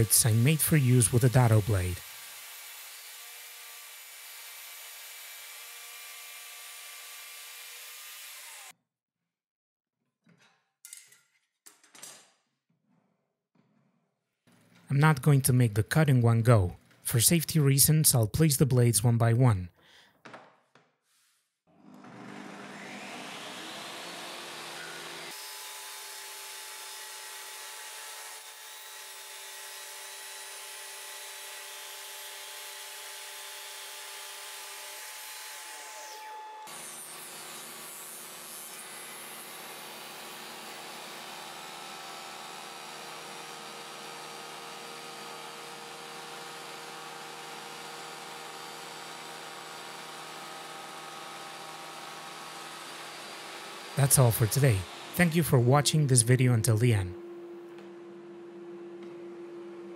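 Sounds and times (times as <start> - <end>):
table saw running: 21.7 - 55.6.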